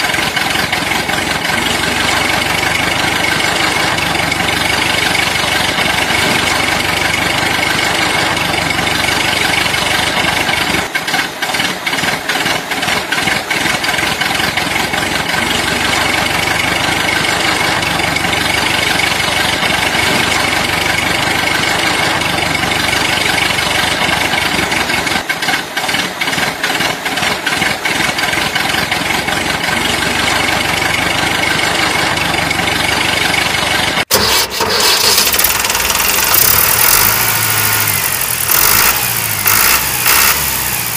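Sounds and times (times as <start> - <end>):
toy excavator motor running: 34.1 - 40.9.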